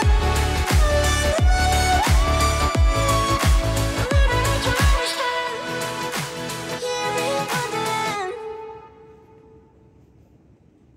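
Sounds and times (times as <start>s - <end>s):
music with pitched notes over a beat: 0.0s - 8.4s.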